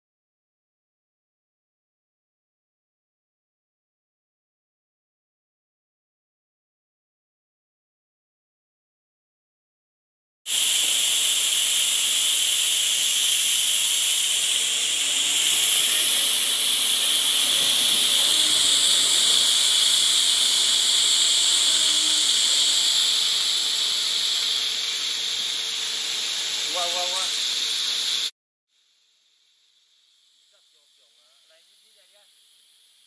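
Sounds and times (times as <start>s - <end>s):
compressed air hissing: 10.5s - 28.3s, 30.5s - 33.0s.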